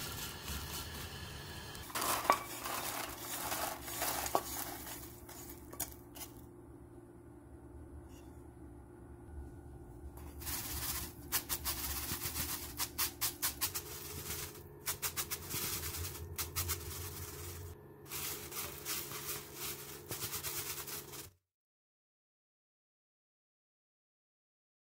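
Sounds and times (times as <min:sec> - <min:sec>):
dried shrimp rattling in strainer: 0:01.8 - 0:05.9, 0:10.4 - 0:21.3.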